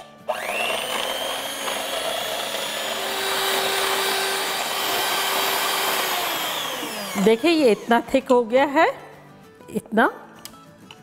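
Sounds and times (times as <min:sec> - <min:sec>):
electric hand mixer whine: 0:00.0 - 0:08.2
beaters whipping cream in bowl: 0:00.3 - 0:08.4.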